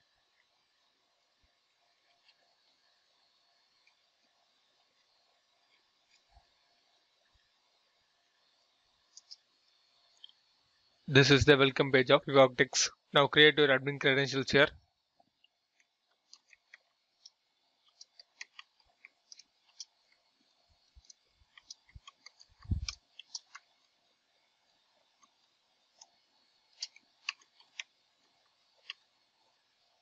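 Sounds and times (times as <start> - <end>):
faint keyboard typing: 9.1 - 9.5, 15.4 - 24.0, 25.0 - 29.2.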